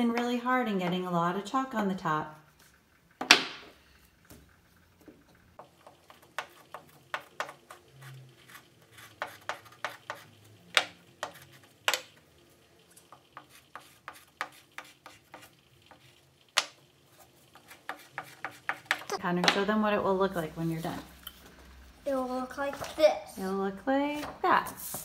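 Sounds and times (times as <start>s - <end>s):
chalk scratching on paper: 7.4s - 10.4s, 11.2s - 11.8s, 13.4s - 16.1s, 17.1s - 19.1s.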